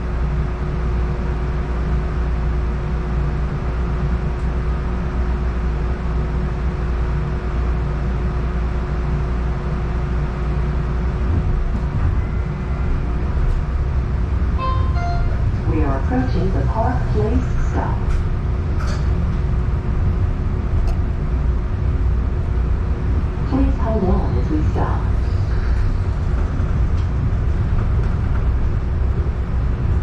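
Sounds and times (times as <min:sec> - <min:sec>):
tram cabin hum: 0:00.0 - 0:30.0
tram pulling away: 0:11.0 - 0:30.0.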